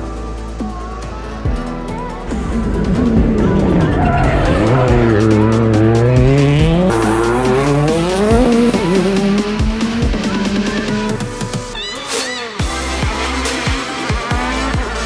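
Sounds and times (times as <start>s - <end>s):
music playing: 0.0s - 15.0s
rally car engine revving: 2.2s - 11.7s.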